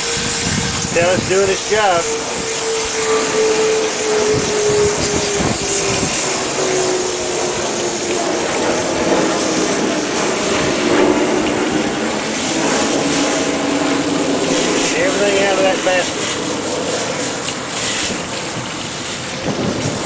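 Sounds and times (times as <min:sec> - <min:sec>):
hose spray splashing into water: 0:00.0 - 0:20.0
steady mechanical hum: 0:00.0 - 0:20.0.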